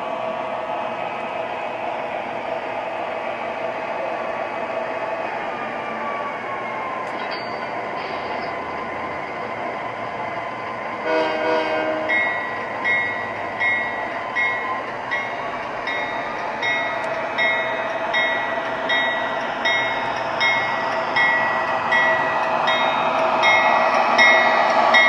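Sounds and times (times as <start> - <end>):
model train running on track: 0.0 - 25.0
locomotive bell ringing: 7.1 - 8.7, 12.0 - 25.0
model train horn: 11.0 - 12.4.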